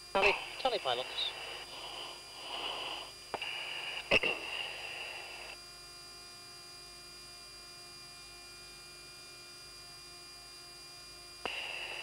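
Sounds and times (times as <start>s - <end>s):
electrical hum: 0.0s - 12.0s
hiss: 1.3s - 5.6s, 11.4s - 12.0s.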